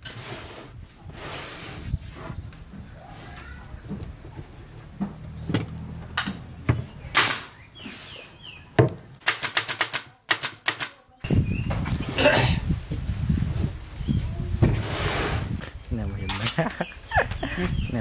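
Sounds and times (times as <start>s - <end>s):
nail gun firing: 7.1s - 7.6s, 9.2s - 11.0s.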